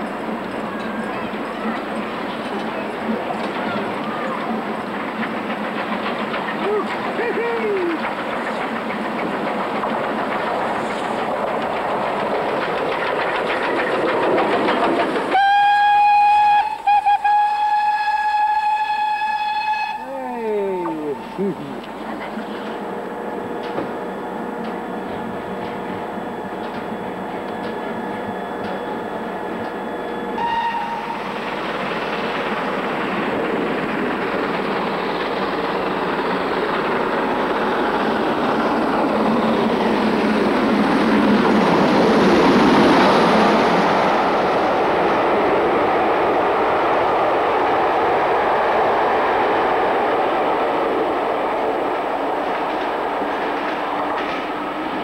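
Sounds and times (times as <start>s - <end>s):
steam train passing: 0.0s - 55.0s
wheels clattering over rail joints: 0.3s - 15.4s, 52.3s - 55.0s
steam whistle: 15.3s - 20.0s, 30.3s - 31.3s.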